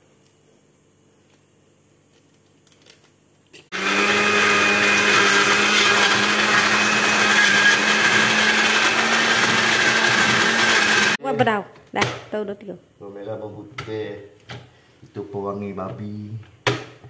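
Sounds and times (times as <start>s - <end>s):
blender whirring: 3.7s - 11.2s.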